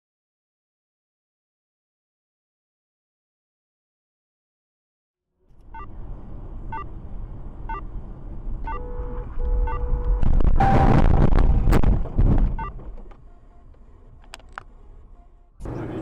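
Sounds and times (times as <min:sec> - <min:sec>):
car cabin noise: 0:07.5 - 0:16.0
car horn: 0:08.6 - 0:11.3.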